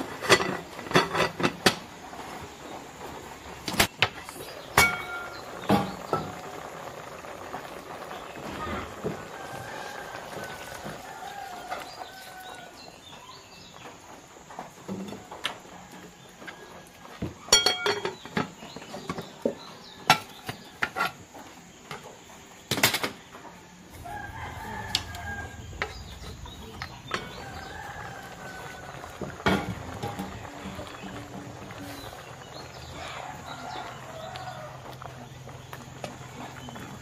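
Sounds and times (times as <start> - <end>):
rooster crowing: 9.0 - 13.0, 23.9 - 32.1, 32.8 - 35.1.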